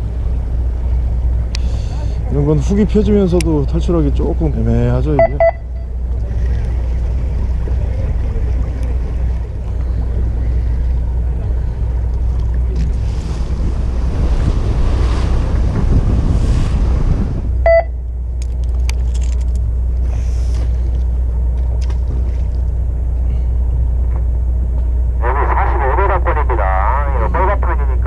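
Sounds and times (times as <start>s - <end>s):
boat engine humming: 0.0s - 28.0s
short beep: 5.2s - 5.9s, 17.6s - 18.0s.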